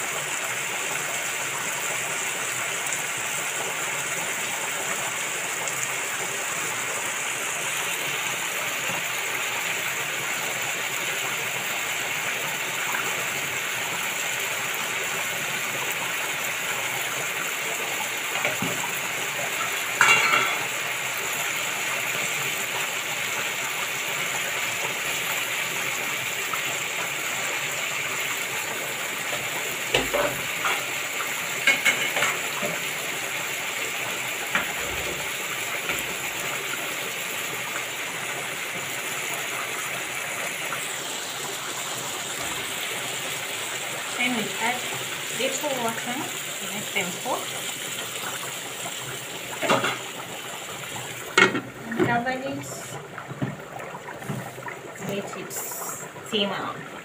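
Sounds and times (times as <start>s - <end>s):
food sizzling in a pan: 0.0s - 57.0s
metal utensil clinking on pan: 20.0s - 20.7s.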